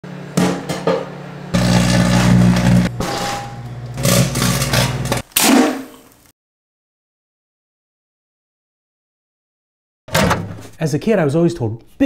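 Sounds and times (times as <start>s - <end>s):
microwave oven humming: 0.0s - 5.2s
popping and crackling food: 3.6s - 6.3s.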